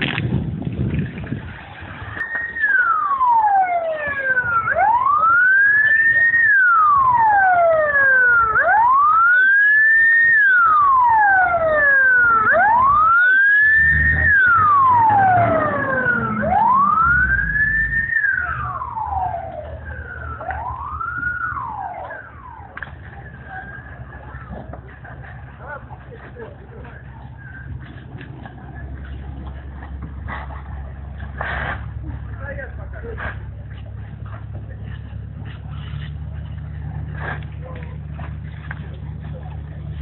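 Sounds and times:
emergency siren wailing: 2.0s - 31.2s.

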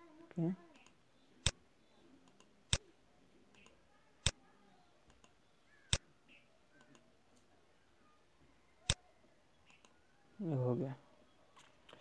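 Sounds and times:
computer mouse button clicking: 3.5s - 4.4s, 9.7s - 10.0s.

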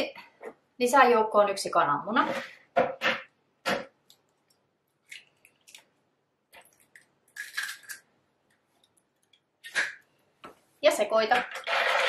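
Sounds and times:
egg shell crackling: 4.1s - 9.8s.

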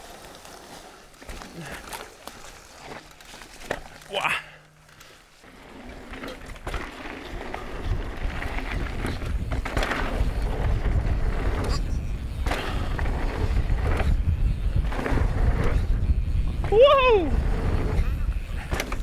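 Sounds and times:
bike rattling over rocks: 0.0s - 19.0s
wind rumble on microphone: 7.2s - 19.0s.

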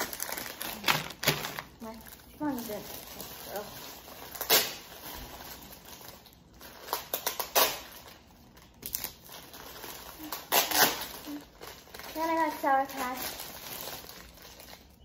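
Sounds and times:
packaging rustling and crinkling: 0.0s - 15.0s.

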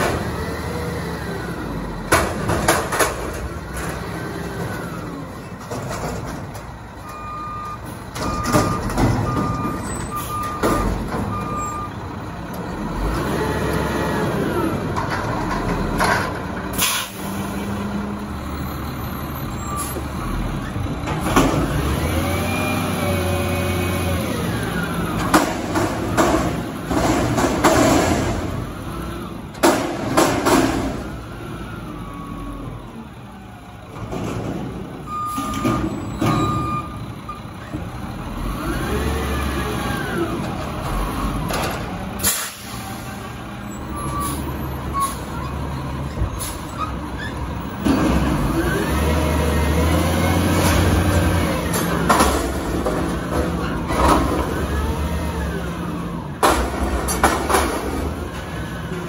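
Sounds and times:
diesel engine revving: 0.0s - 59.0s
air brake hisses: 16.8s - 17.4s, 42.2s - 43.0s.

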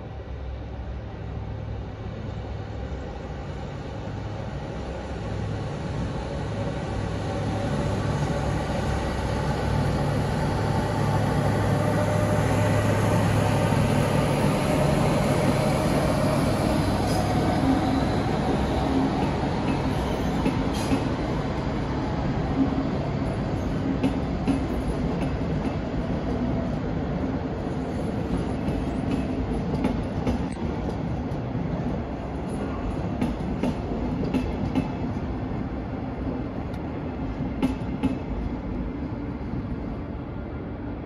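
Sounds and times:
low train hum: 0.0s - 41.0s
train wheels clicking over rail joints: 19.2s - 21.2s, 24.0s - 25.8s, 28.4s - 31.4s, 32.5s - 35.1s, 37.6s - 38.4s.

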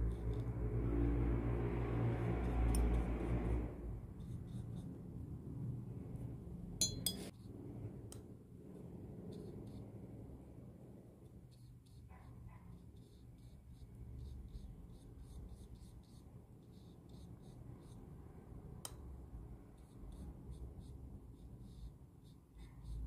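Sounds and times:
glass clinks: 6.8s - 7.3s.

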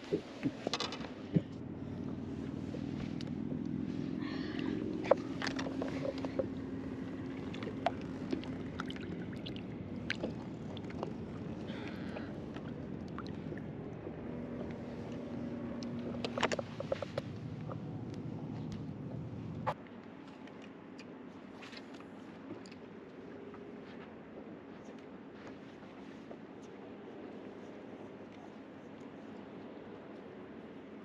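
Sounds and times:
boat motor humming: 0.0s - 19.8s.

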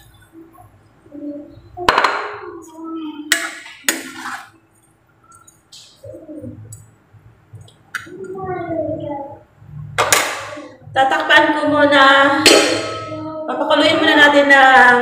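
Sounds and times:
ladle scraping wok: 3.9s - 4.6s.

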